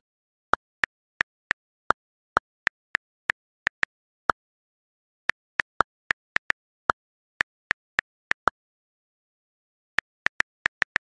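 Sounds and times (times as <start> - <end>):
phone keyboard ticks: 0.5 - 4.4, 5.2 - 8.6, 10.0 - 11.0.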